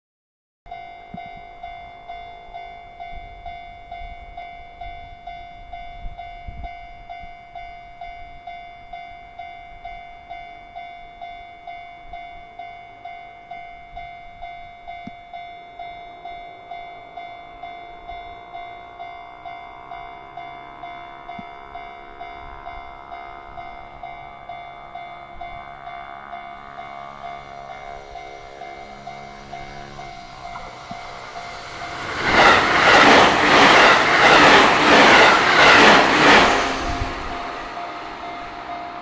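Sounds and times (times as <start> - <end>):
level crossing warning bell: 0.7 - 39.0
faint low rumble: 18.4 - 34.8.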